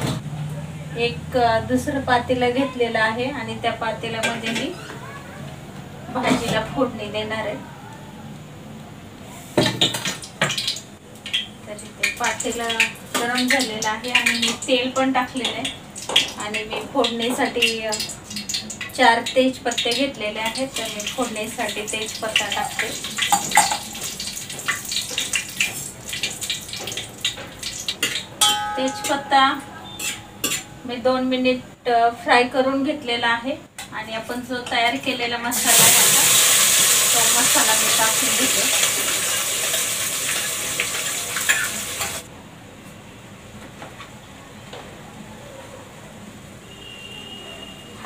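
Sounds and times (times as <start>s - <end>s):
leaves sizzling in hot oil: 19.8s - 28.2s, 35.5s - 42.3s
steel pot clanking: 22.6s - 30.7s
spoon scraping and clinking: 29.9s - 30.7s.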